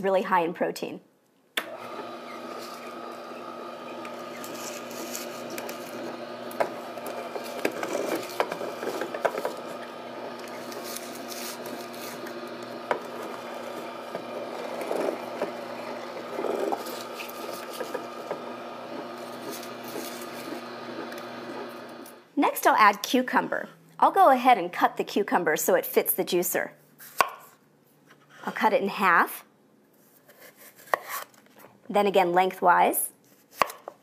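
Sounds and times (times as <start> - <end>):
juicer humming: 1.6 - 22.4
gears crushing leaves: 1.8 - 21.3.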